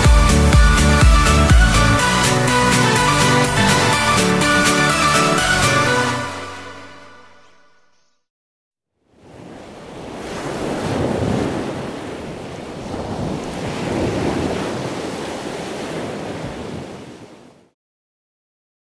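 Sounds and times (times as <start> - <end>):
sea waves: 0.0 - 6.6, 9.1 - 17.8
wind buffeting microphone: 10.1 - 17.4.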